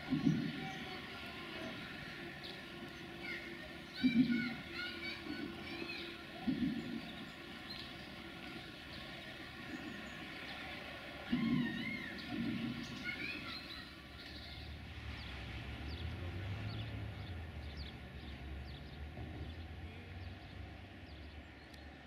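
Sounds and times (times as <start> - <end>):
birds chirping and calling: 0.0 - 14.8
low engine rumble: 0.0 - 22.0.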